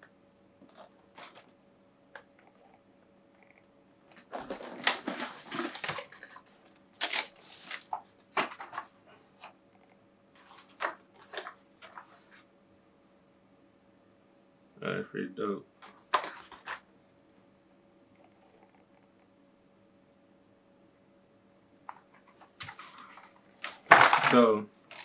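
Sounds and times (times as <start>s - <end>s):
cardboard box rustling and scraping: 4.3s - 6.5s.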